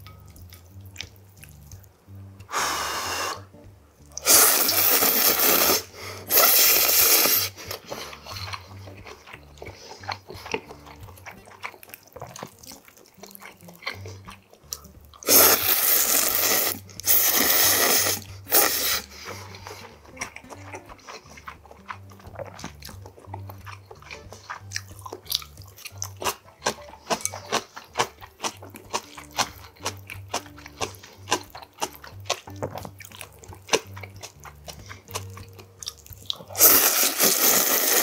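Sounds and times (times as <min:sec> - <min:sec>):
wet chewing: 0:00.0 - 0:38.0
slurping noodles: 0:04.2 - 0:10.9, 0:15.2 - 0:20.0, 0:36.3 - 0:38.0.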